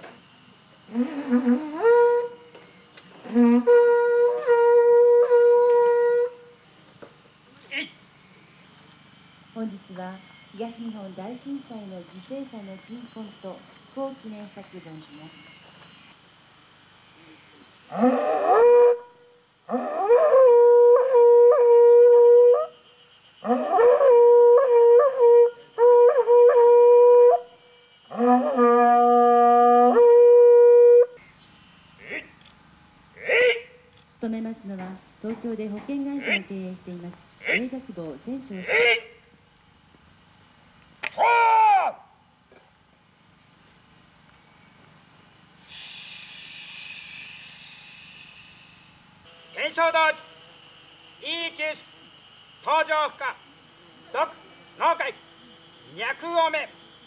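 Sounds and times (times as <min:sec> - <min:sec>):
conch shell trumpet blasts: 0:28.1 - 0:31.0.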